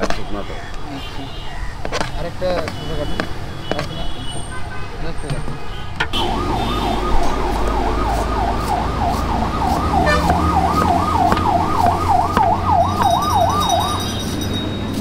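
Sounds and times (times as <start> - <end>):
low traffic rumble: 0.0 - 15.0
fast-cycling vehicle siren: 6.2 - 14.8.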